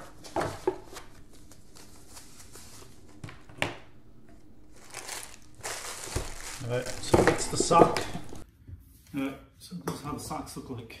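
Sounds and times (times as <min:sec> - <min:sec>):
paper and plastic rustling: 0:00.0 - 0:08.4.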